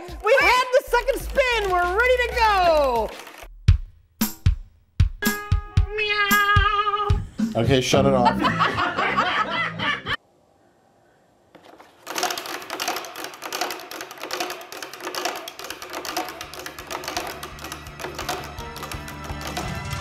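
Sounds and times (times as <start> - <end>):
prize wheel pointer clicking: 12.1 - 20.0.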